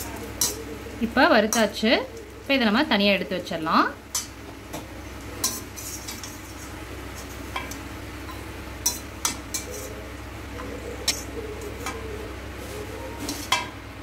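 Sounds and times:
metal spoon clinking on pan: 0.2s - 0.7s, 4.1s - 4.4s, 7.5s - 10.0s.

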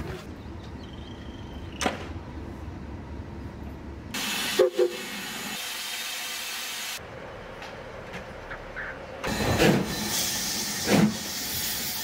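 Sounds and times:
steam hissing: 4.2s - 7.0s.

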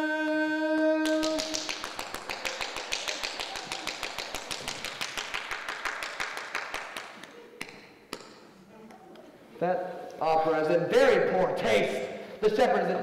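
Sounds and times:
hand clapping: 1.0s - 8.6s.

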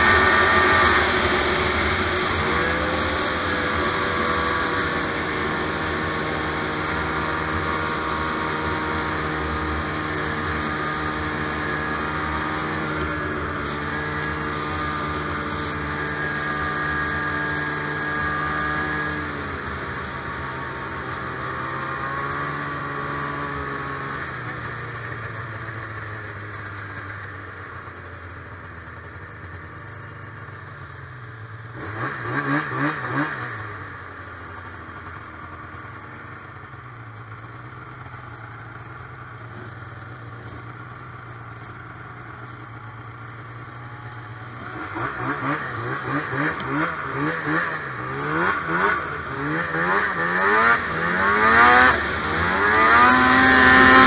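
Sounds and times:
snowmobile engine revving: 0.0s - 26.8s, 31.7s - 34.0s, 37.3s - 54.0s
snowmobile engine running: 0.0s - 54.0s.

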